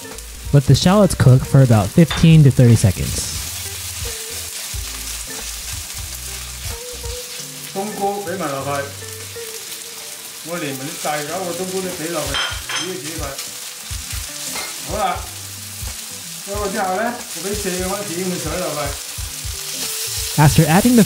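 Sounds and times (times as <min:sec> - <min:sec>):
food sizzling in a wok: 0:00.0 - 0:21.0.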